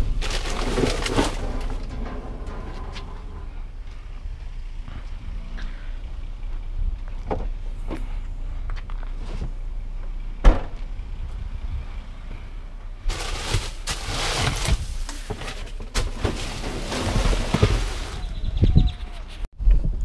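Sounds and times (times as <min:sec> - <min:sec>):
plastic trash bags rustling: 0:00.0 - 0:02.0, 0:13.1 - 0:18.4.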